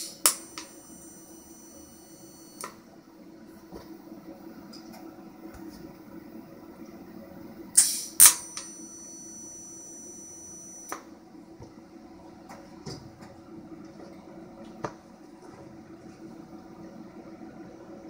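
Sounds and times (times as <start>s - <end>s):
welding arc whine: 0.0s - 11.5s.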